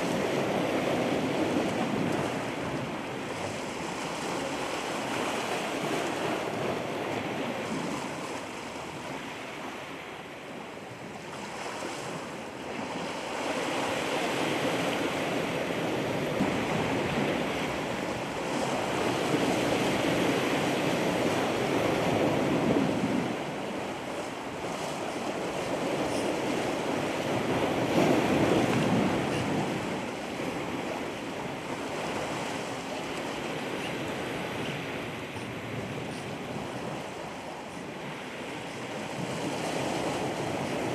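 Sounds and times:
ocean surf breaking: 0:00.0 - 0:40.9.

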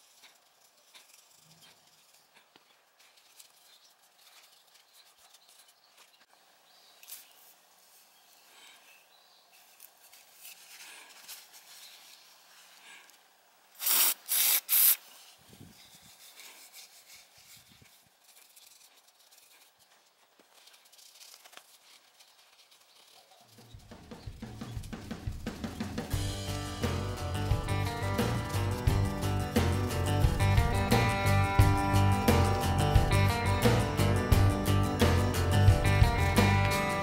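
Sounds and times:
cloth rubbing on metal: 0:00.0 - 0:06.3, 0:07.0 - 0:37.0
aerosol can hissing: 0:13.8 - 0:15.2.

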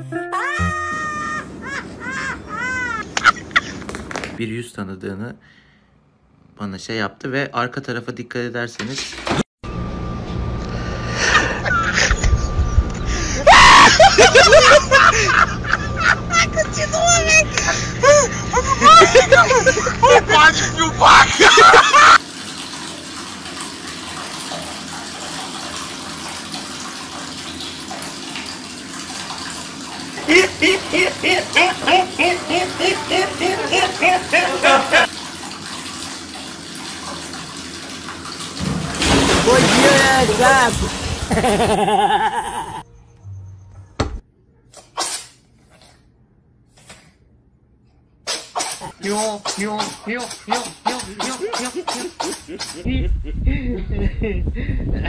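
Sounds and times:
person speaking: 0:18.6 - 0:21.4, 0:39.4 - 0:41.0
tap water running into bathtub: 0:21.0 - 0:42.4
cat coughing: 0:48.3 - 0:52.8.

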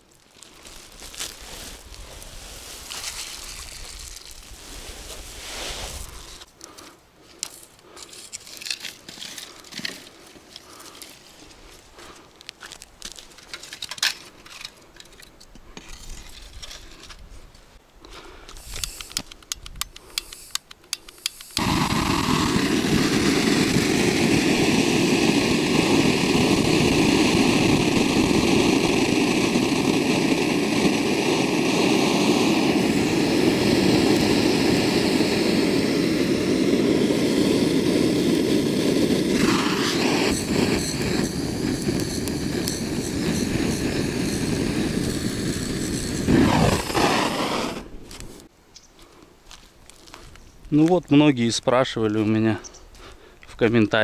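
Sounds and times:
gas burner rushing: 0:20.1 - 0:48.5.

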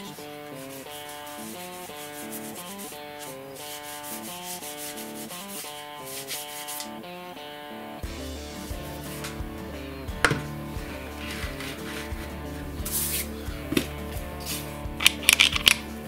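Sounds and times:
rag wiping on wood: 0:00.0 - 0:06.9, 0:10.6 - 0:14.8
guitar music: 0:00.0 - 0:16.0.

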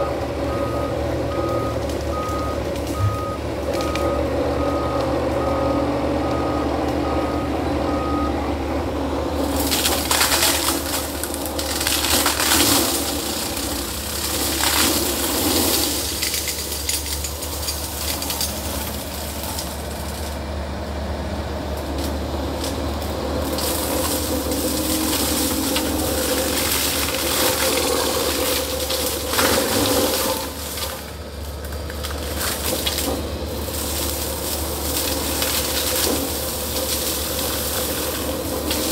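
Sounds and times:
travel alarm beeping: 0:00.0 - 0:08.4
diesel engine and hydraulics droning: 0:00.0 - 0:38.9
flail mower shredding bamboo: 0:00.0 - 0:38.9.

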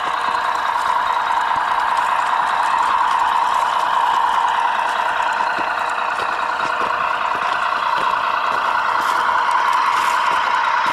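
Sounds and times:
model truck motor drone: 0:00.0 - 0:10.9.

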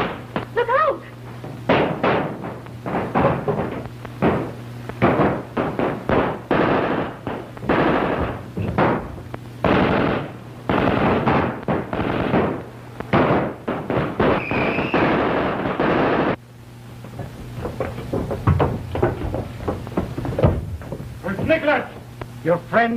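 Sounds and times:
heavy gunfire: 0:01.7 - 0:16.4.

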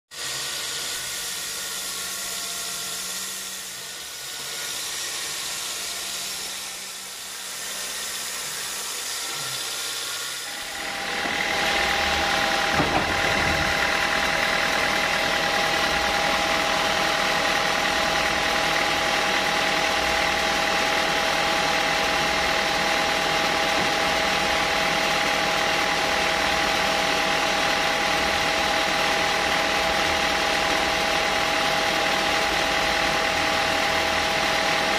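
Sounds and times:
band sawmill machinery running: 0:00.1 - 0:34.9
high whine: 0:10.5 - 0:34.9
brief knock: 0:12.6 - 0:13.8.

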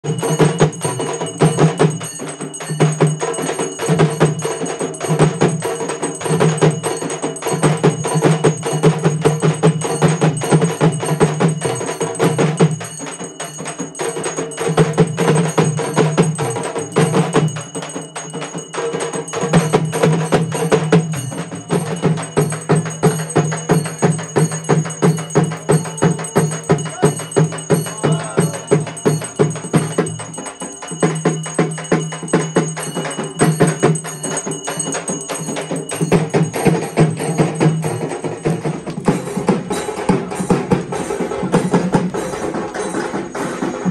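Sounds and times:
fast dense drumming: 0:00.0 - 0:43.9.

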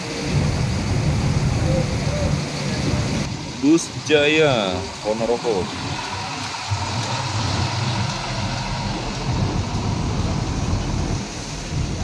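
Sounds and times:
bus diesel engine rumbling: 0:00.0 - 0:12.0.

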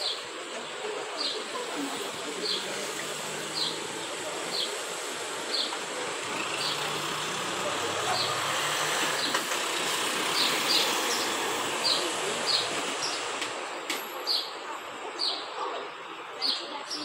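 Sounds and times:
street traffic: 0:00.0 - 0:17.0
vehicle engine hum: 0:00.8 - 0:13.8.

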